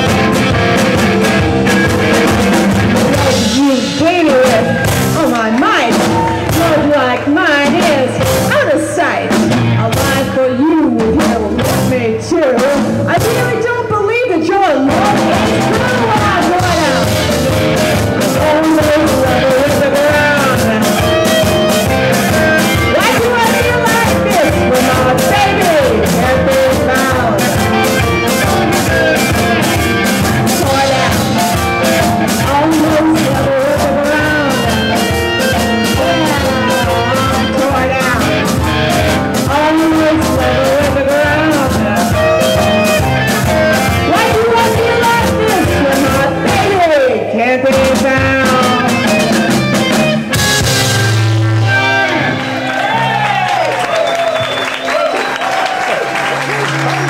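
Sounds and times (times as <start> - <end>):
drum kit beat: 0.0 - 57.0
electric guitars: 0.0 - 57.0
woman singing: 3.0 - 17.2, 18.2 - 49.6.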